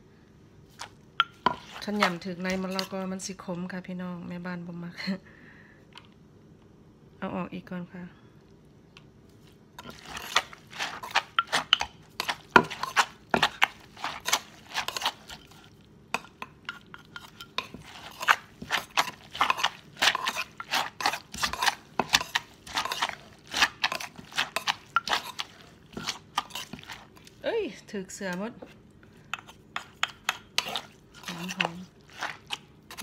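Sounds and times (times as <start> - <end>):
metal spoon scraping: 1.2 - 3.1, 9.8 - 27.3, 29.3 - 33.0.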